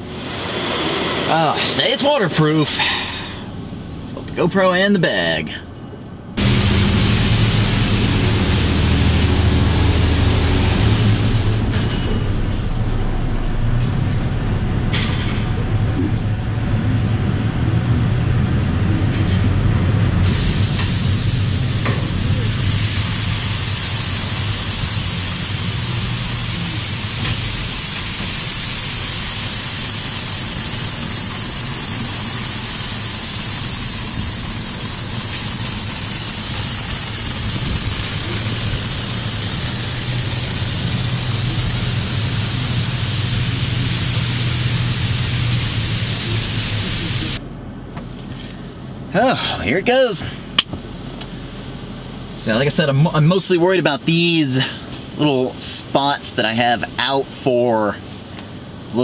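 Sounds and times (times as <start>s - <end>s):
steady low hum: 5.5s - 59.0s
car wash spraying water: 6.4s - 19.0s, 20.2s - 47.4s.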